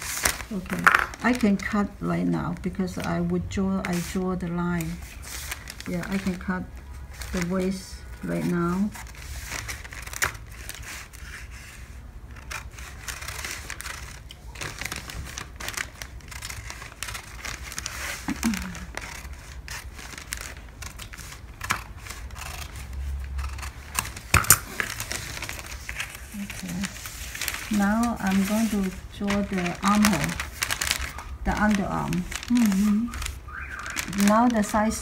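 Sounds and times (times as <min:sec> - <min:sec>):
paper crinkling: 0:00.0 - 0:35.0
shears snipping paper: 0:12.3 - 0:35.0.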